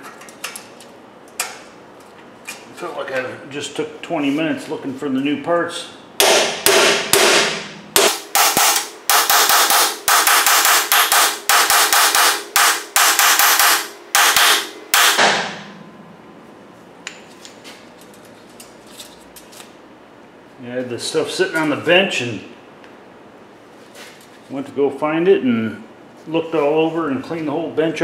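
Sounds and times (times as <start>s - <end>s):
hammer striking metal: 6.2s - 15.8s.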